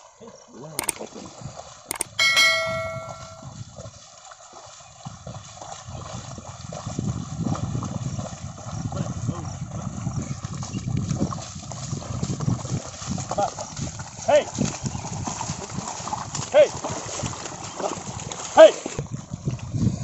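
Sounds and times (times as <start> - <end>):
hooves and plough sloshing in mud: 0.0 - 20.0
mouse click: 1.9 - 2.2
notification bell chime: 1.9 - 3.5.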